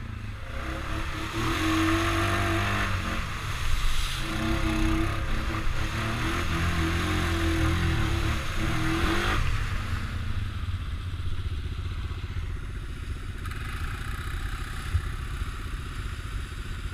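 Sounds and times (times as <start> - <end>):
quad engine pulling: 12.8 - 16.9.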